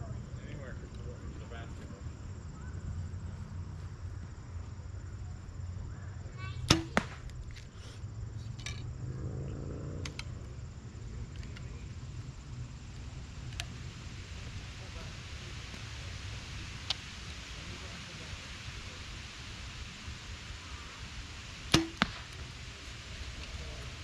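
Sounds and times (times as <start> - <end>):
arrow striking target: 6.6 - 7.3, 21.7 - 22.4
bow string release crack: 8.6 - 8.8, 10.0 - 10.4.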